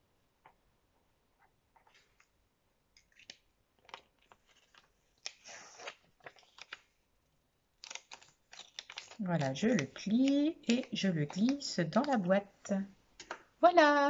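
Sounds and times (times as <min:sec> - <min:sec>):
paper rustling and crinkling: 0:03.1 - 0:07.0, 0:07.8 - 0:12.3.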